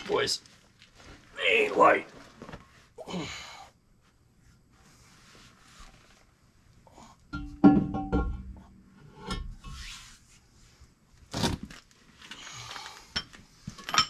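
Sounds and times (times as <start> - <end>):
metal knocks and clunks: 7.3 - 9.6
metal scraping and rubbing: 9.0 - 10.3.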